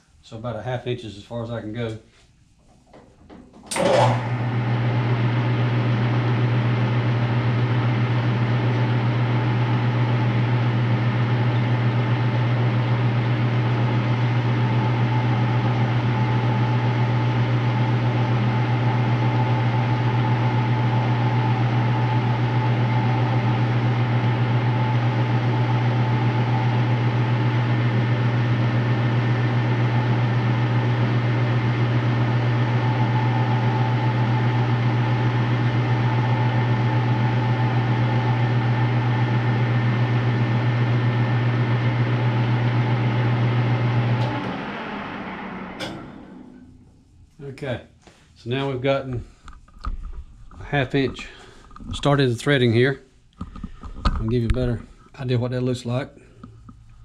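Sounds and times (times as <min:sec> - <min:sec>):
metal lathe running: 0:29.0 - 0:46.8.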